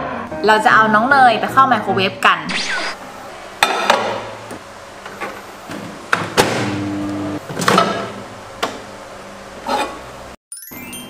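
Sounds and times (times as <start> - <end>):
microwave oven humming: 4.4 - 10.3.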